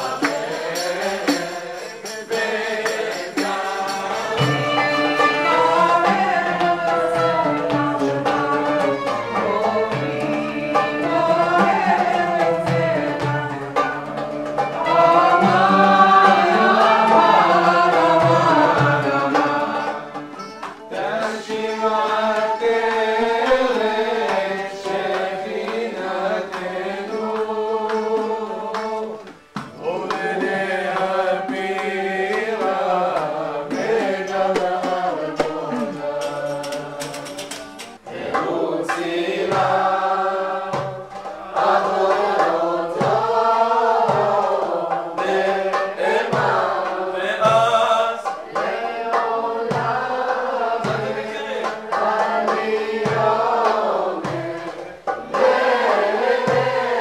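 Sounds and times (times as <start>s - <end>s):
group chanting together: 0.0s - 57.0s
low beat: 33.8s - 38.6s.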